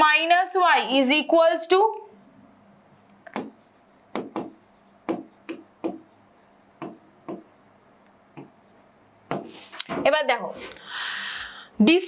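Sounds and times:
chalk tapping and scratching: 2.4 - 9.7.

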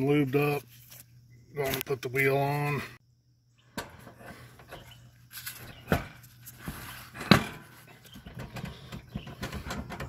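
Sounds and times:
mower wheel knocking and clunking: 3.7 - 10.0.

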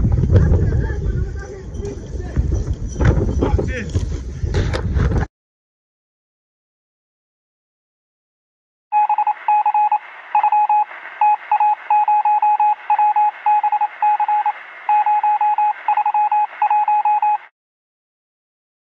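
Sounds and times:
rapid short electronic beeps: 8.9 - 17.5.

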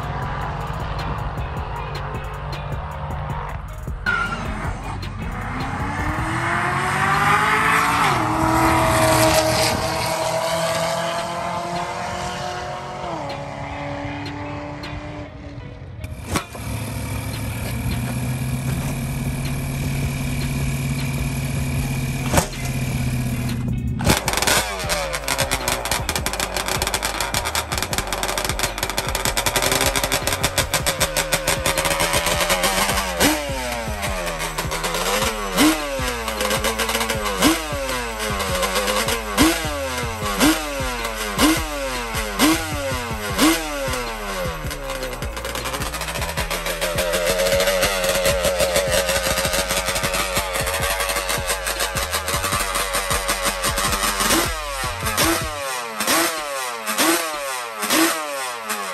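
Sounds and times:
go-kart engine idling: 16.0 - 58.9.

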